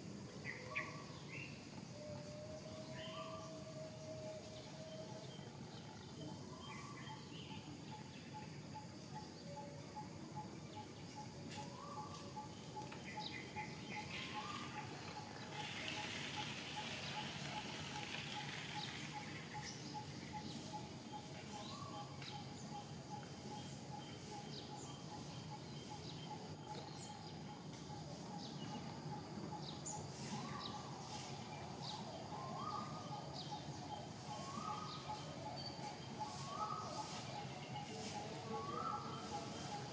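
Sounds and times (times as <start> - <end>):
bird calls: 0.4 - 39.9
soft rushing hiss: 10.2 - 39.9.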